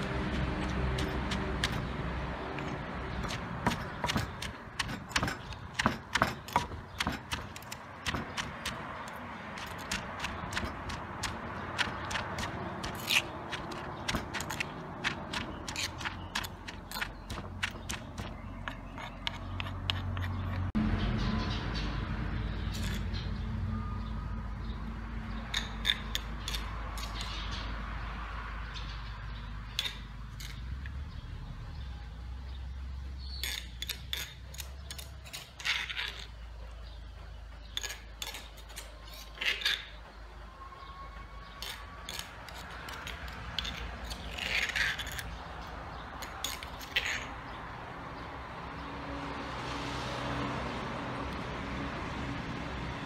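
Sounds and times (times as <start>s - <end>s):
metal spoon scraping and clinking: 11.8s - 20.7s, 22.7s - 23.2s, 33.3s - 36.4s, 37.7s - 40.0s, 41.5s - 45.4s, 46.2s - 47.3s.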